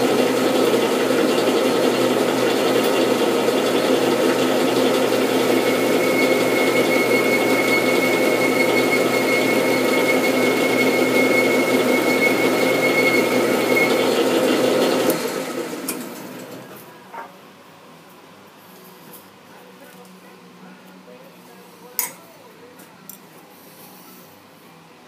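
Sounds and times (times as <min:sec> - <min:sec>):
metal lathe running: 0:00.0 - 0:16.8.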